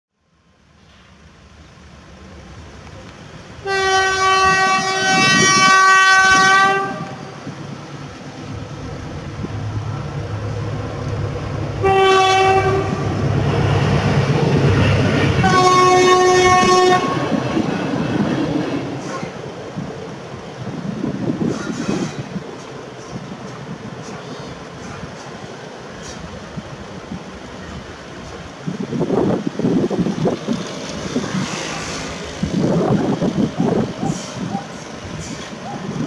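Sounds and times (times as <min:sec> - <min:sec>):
train rumble: 0:00.3 - 0:36.0
train horn blasts: 0:03.6 - 0:07.4, 0:11.8 - 0:13.2, 0:15.3 - 0:17.4.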